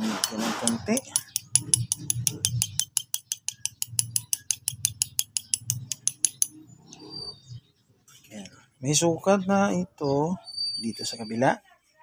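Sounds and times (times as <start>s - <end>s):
ratchet wrench clicking: 0.2s - 6.5s.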